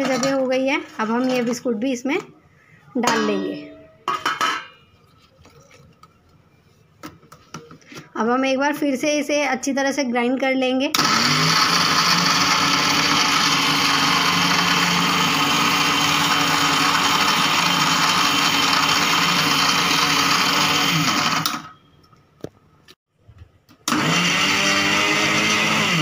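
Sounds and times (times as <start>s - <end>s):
mixer grinder grinding biscuits: 11.0s - 21.7s, 23.9s - 26.0s.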